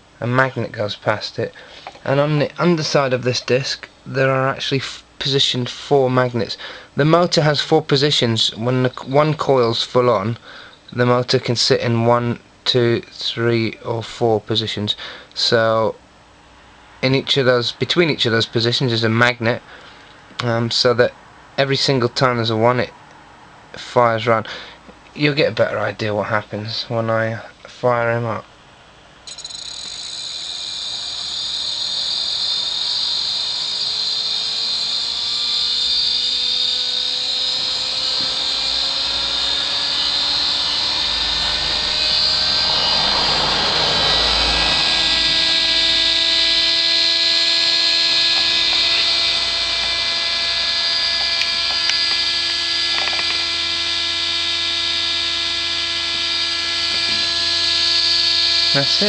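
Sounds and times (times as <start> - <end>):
motor buzzing whine: 29.3 - 59.0.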